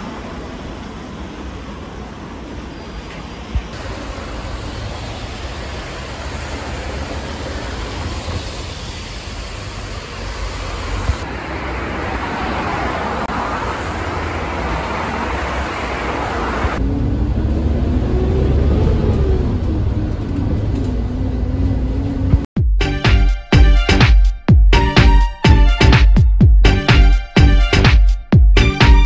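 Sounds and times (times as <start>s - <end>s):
bus engine rumble: 0.0s - 26.0s
street traffic noise: 0.0s - 29.0s.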